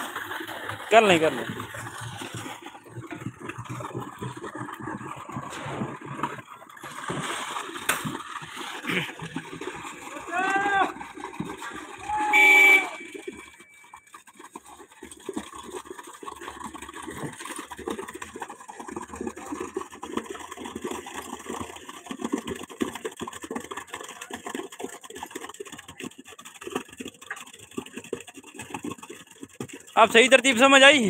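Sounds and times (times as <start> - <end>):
concrete pumping through hose: 0.0 - 31.0
loud pitched call: 12.1 - 13.1.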